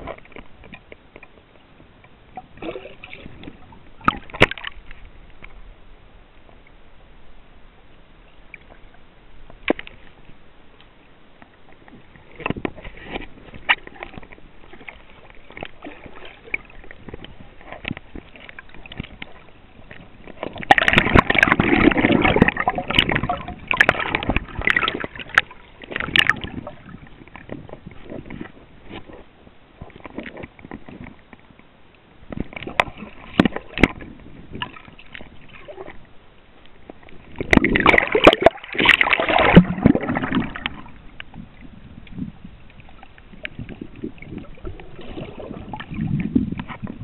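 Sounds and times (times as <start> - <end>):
muffled water sloshing underwater: 0.0 - 47.0.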